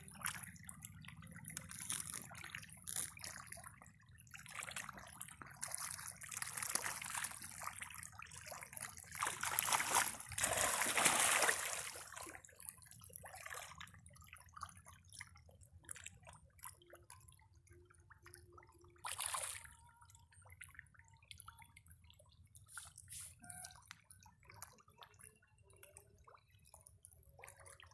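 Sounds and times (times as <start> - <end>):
fish splashing water: 0.0 - 12.6.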